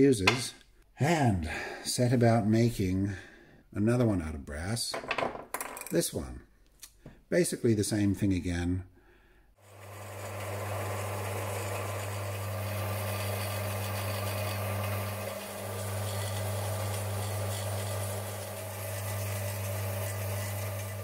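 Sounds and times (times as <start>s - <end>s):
band saw motor hum: 9.7s - 21.0s
saw blade rasping through metal: 11.5s - 21.0s.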